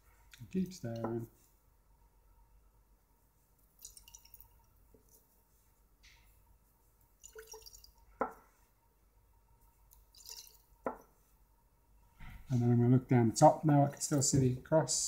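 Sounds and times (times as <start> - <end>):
liquid sloshing in glass flask: 3.6 - 5.3, 7.2 - 8.4, 9.9 - 11.1.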